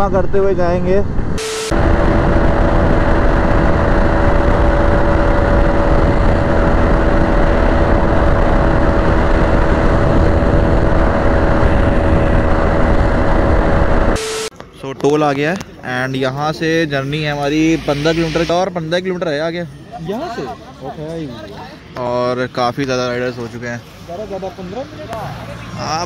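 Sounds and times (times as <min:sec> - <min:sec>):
wind rushing on microphone: 0:00.0 - 0:14.2
motorcycle engine cruising: 0:01.7 - 0:14.2.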